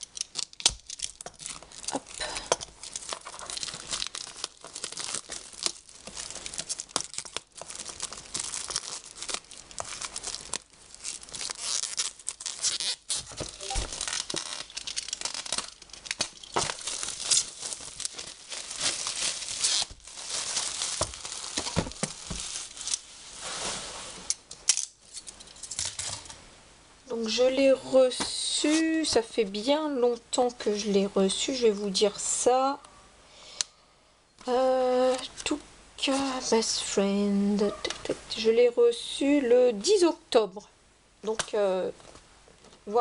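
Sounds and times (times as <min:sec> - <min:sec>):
plastic wrap tearing and crinkling: 0:00.0 - 0:24.3.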